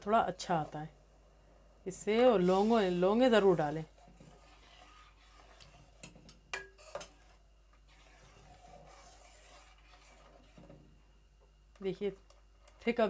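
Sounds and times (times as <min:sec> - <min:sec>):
spoon scraping a pot: 0:02.2 - 0:10.8.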